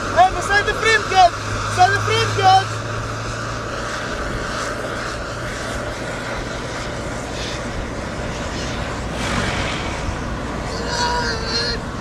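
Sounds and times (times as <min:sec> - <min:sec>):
road and wind noise: 0:00.0 - 0:12.0
wind gust: 0:00.0 - 0:12.0.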